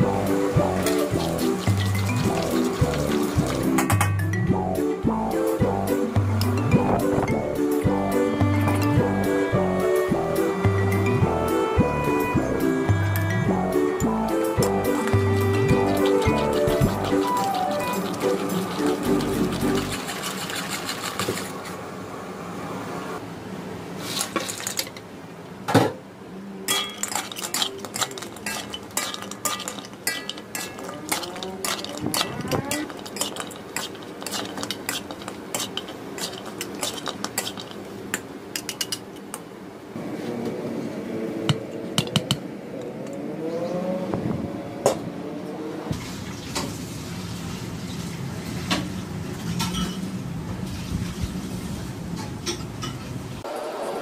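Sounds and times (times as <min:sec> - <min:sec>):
sauce bubbling: 0:00.0 - 0:03.8, 0:14.6 - 0:21.5, 0:27.0 - 0:38.2
frying noise: 0:00.0 - 0:12.9, 0:13.5 - 0:23.2, 0:23.8 - 0:25.2, 0:26.7 - 0:40.3, 0:45.9 - 0:54.0
metal spatula scraping a wok: 0:26.7 - 0:37.9.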